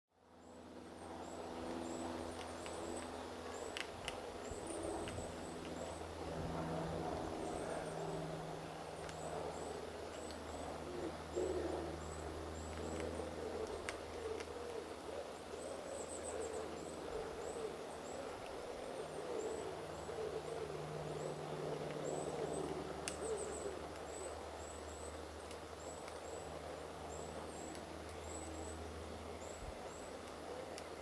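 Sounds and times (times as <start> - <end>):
bird hooting calls: 9.2 - 25.0.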